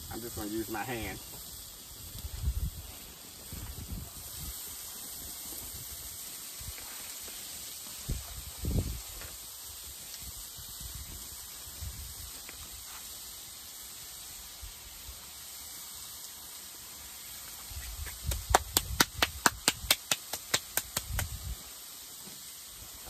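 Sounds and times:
steady low hiss: 0.0 - 23.0
hands clapping: 17.9 - 21.4.

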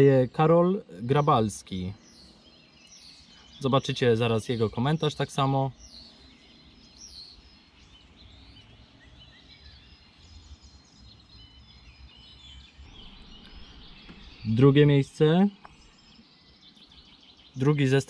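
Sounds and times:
birds chirping and whistling: 0.0 - 18.0.

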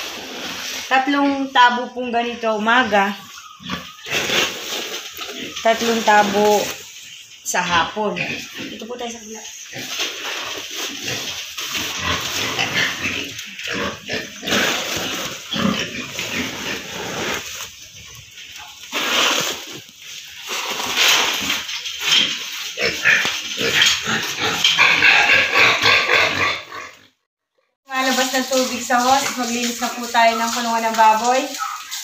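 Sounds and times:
pigs squealing: 2.4 - 19.9, 21.1 - 27.1
feed poured into troughs: 14.5 - 22.7.

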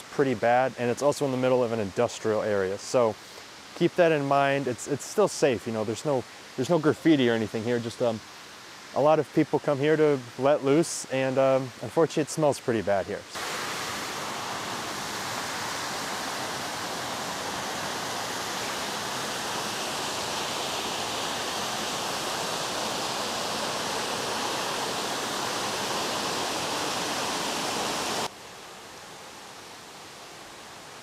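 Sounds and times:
water rushing over rocks: 13.3 - 31.0.

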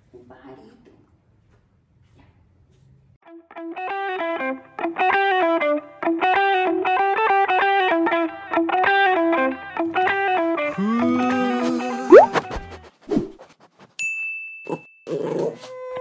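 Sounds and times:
guitar playing rhythmic chords: 3.3 - 12.1.

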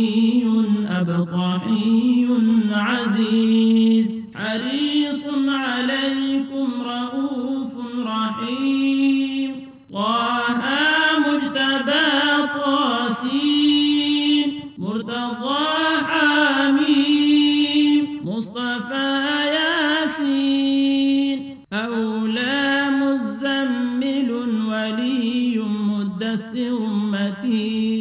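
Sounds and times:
person chanting unaccompanied: 0.0 - 28.0.

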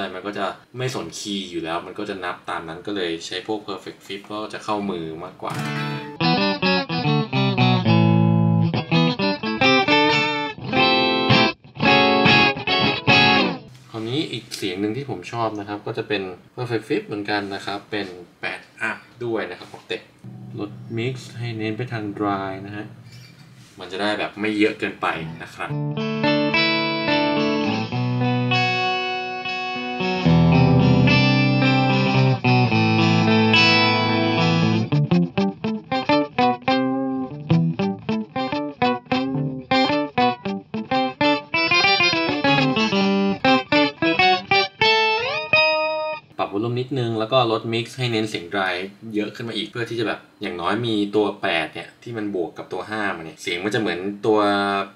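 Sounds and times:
electric guitar with harmony effect: 5.5 - 13.7, 20.2 - 21.4, 25.7 - 46.4.

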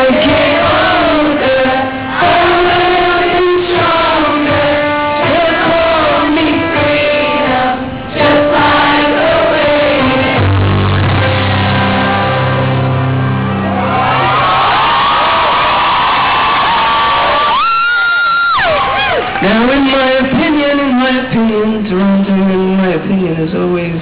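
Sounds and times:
crowd singing along: 0.0 - 14.1
live band playing: 0.0 - 22.7.

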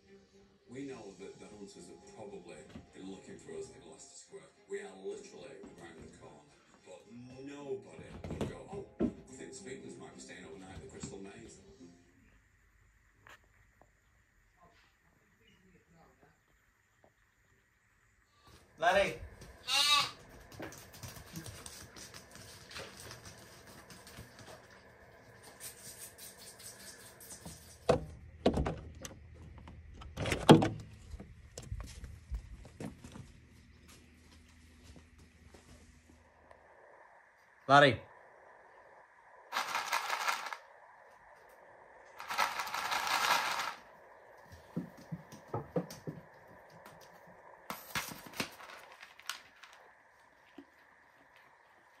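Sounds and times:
hooves clicking on tiled floor: 19.2 - 27.9, 42.2 - 52.0
pellets rattling in plastic tub: 39.5 - 40.6, 42.2 - 43.8.

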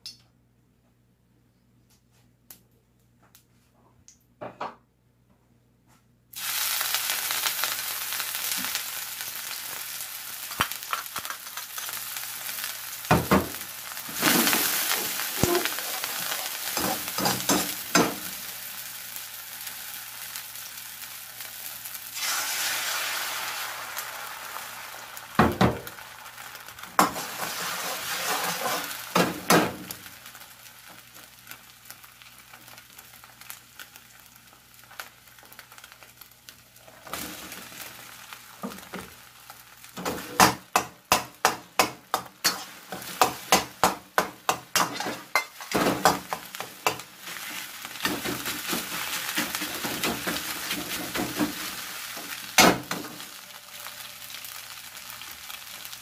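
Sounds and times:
egg and rice sizzling in a wok: 6.3 - 56.0
ladle knocking and scraping wok: 27.0 - 29.7, 40.0 - 51.7.

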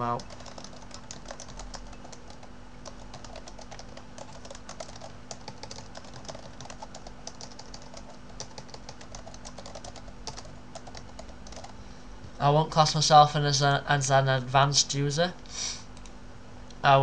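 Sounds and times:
computer keyboard typing: 0.0 - 11.8
faint steady hum: 0.0 - 17.0.

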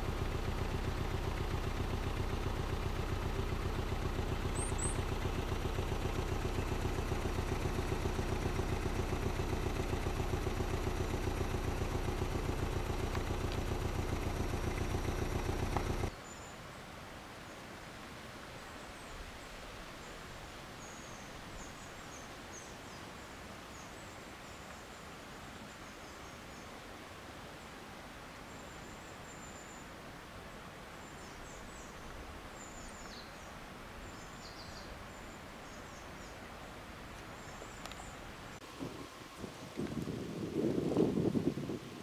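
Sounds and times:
faint high bird chirps: 0.0 - 16.6.

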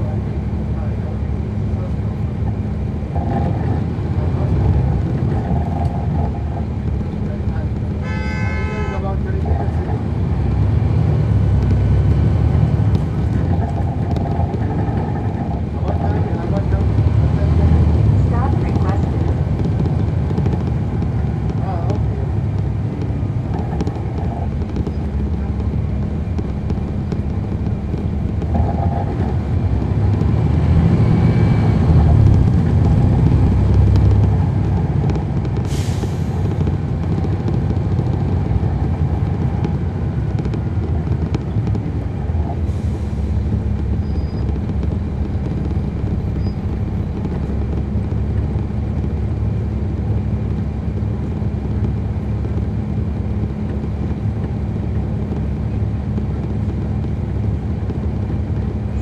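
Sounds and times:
bus diesel engine rumble: 0.0 - 59.0.

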